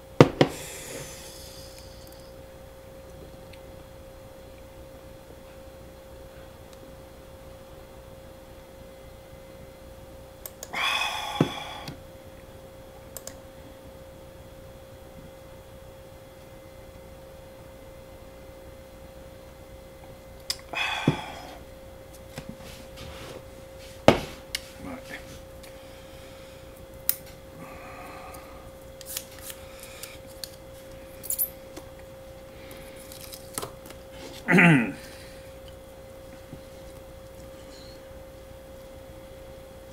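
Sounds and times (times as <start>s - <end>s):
faint steady hum: 0.0s - 39.9s
breathy exhale: 0.5s - 2.3s, 10.7s - 12.0s, 20.7s - 21.6s, 27.6s - 28.8s
faint steady tone: 34.6s - 39.9s.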